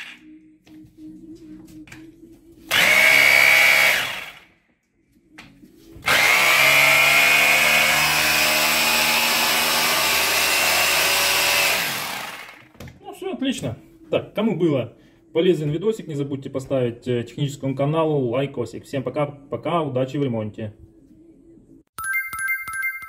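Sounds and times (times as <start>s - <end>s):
rotary hammer motor running: 2.7s - 4.4s, 6.1s - 12.6s.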